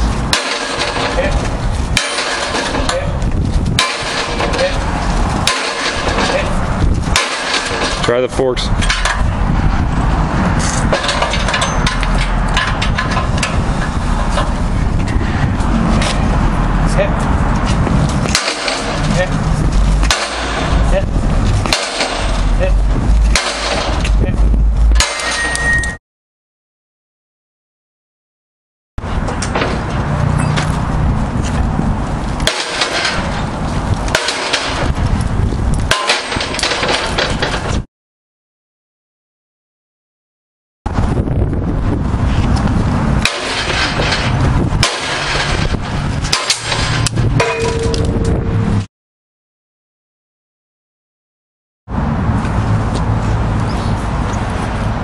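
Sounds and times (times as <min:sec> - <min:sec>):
fire engine rumbling: 0:00.0 - 0:26.0, 0:29.0 - 0:37.9, 0:40.9 - 0:48.9, 0:51.9 - 0:55.0
sharp metallic snaps: 0:20.0 - 0:20.8, 0:21.6 - 0:24.2, 0:46.3 - 0:48.1.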